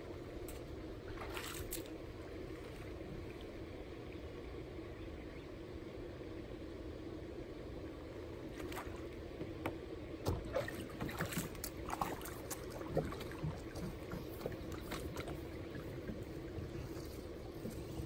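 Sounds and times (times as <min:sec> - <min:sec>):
steady low hum: 0:00.0 - 0:18.0
water sloshing and dripping: 0:00.4 - 0:03.6, 0:08.4 - 0:18.0
knocks and splashes: 0:00.5 - 0:02.0, 0:08.6 - 0:16.3.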